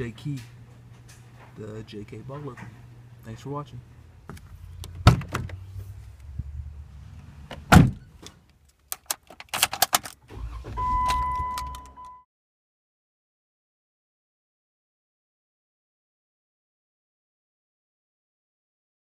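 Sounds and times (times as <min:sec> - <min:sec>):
car engine starting and running: 0:04.0 - 0:12.2
car door shutting: 0:04.3 - 0:05.8, 0:07.5 - 0:08.3, 0:09.6 - 0:12.1
keys clicking into ignition: 0:08.4 - 0:12.2
car door latch clicking: 0:08.9 - 0:12.0.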